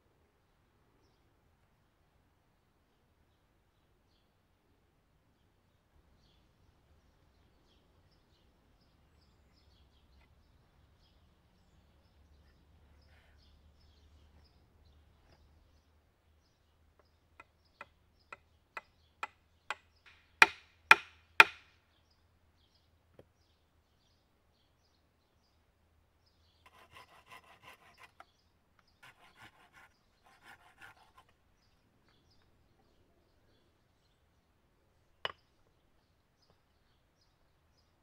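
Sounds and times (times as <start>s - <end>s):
wood scraping on wood: 26.6s - 28.3s, 29.0s - 31.4s.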